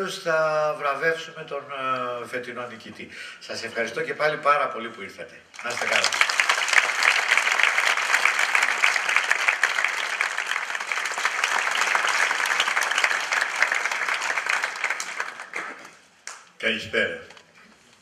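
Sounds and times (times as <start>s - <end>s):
audience applauding: 5.6s - 16.5s.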